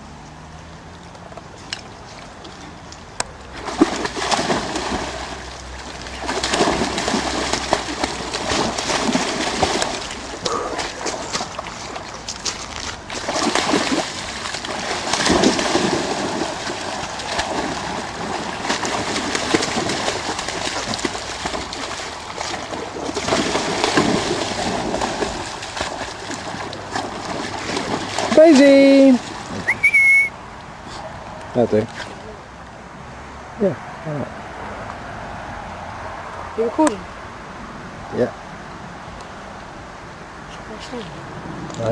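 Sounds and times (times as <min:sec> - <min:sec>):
dog splashing through water: 0:03.5 - 0:29.9.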